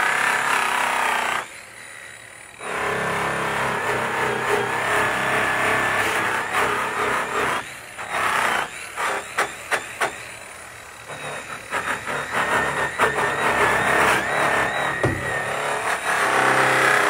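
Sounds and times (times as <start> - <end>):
angle grinder whine: 10.3 - 17.0.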